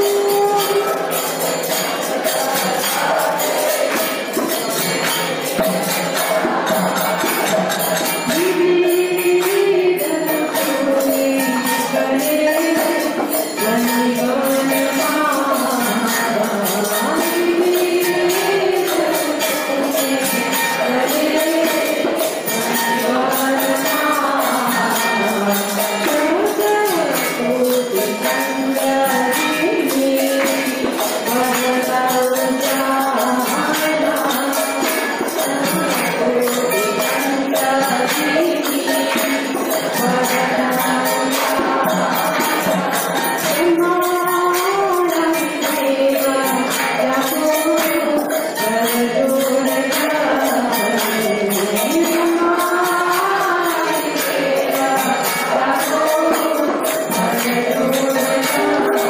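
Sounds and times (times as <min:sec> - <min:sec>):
woman singing a hymn: 0:00.0 - 0:00.8, 0:08.3 - 0:30.5, 0:35.4 - 0:39.1, 0:43.5 - 0:59.0
jingling hand percussion: 0:00.0 - 0:59.0.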